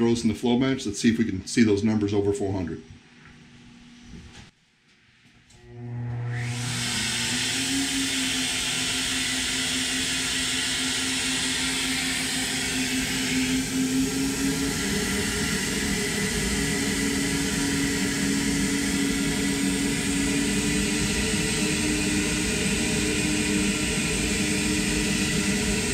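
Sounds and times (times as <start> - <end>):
flow bench motors roaring: 5.5 - 25.9.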